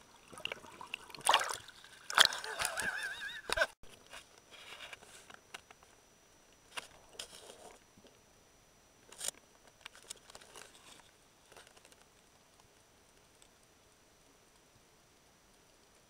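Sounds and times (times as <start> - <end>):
faint high whine: 0.0 - 16.0
underwater clicks and crackles: 0.3 - 5.9, 9.1 - 13.8.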